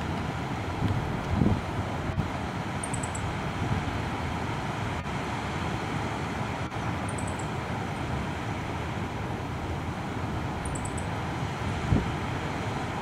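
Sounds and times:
wind noise on microphone: 0.0s - 5.1s, 11.6s - 13.0s.

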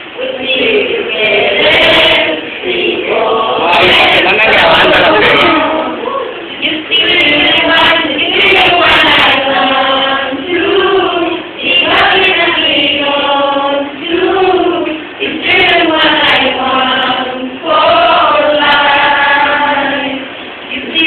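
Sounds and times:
children singing together: 0.0s - 21.0s.

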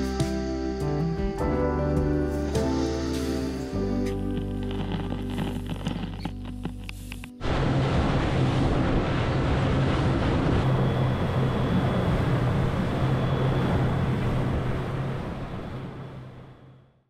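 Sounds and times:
rushing water: 7.4s - 16.5s.

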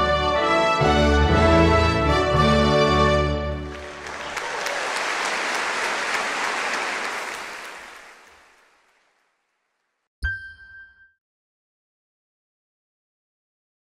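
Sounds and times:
applause: 3.5s - 9.8s
electronic ding with low thump: 10.2s - 11.2s.

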